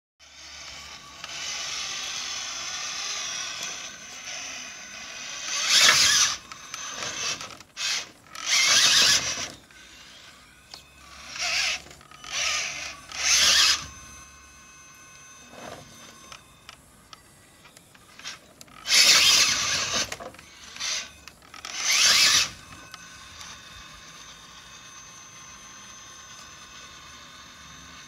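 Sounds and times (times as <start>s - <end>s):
electric motor whining: 0.2s - 28.0s.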